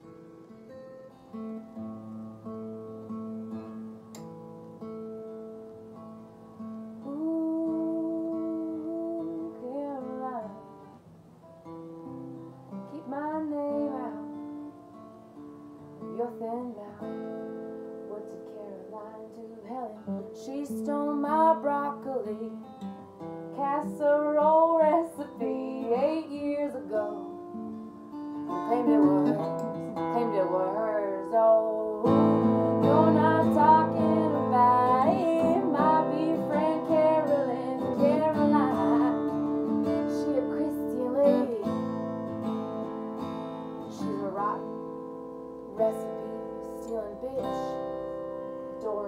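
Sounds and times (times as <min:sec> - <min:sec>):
strummed acoustic guitar: 0:00.0 - 0:49.0
woman singing: 0:07.0 - 0:11.0, 0:12.8 - 0:14.7, 0:16.0 - 0:17.2, 0:18.0 - 0:22.9, 0:23.5 - 0:27.8, 0:28.5 - 0:42.5, 0:43.8 - 0:45.0, 0:45.7 - 0:49.0.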